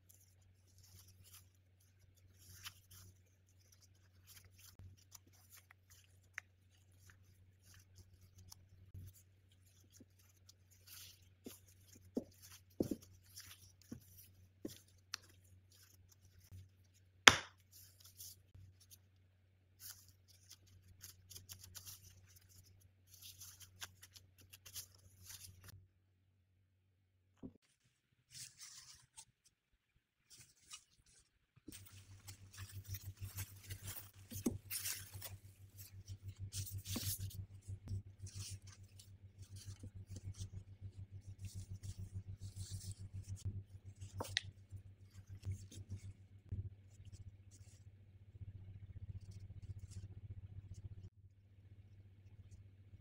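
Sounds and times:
plastic gloves crinkling: 0.0 - 25.8, 30.2 - 46.4.

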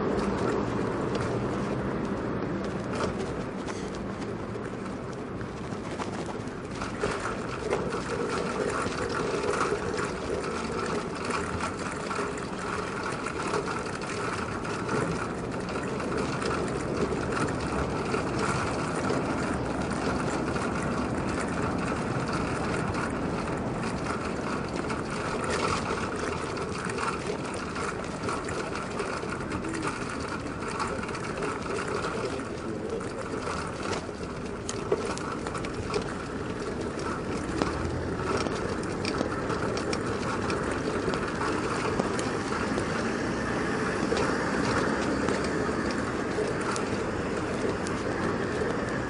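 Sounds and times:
bicycle rattle: 0.0 - 49.0
bicycle tyre and road noise: 0.0 - 49.0.

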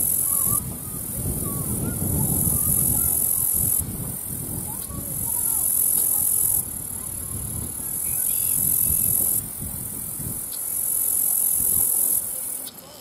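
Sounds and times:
high-pitched insect buzzing: 0.0 - 12.3
wind on microphone: 0.0 - 12.3
faint bird chirps: 8.0 - 9.2.

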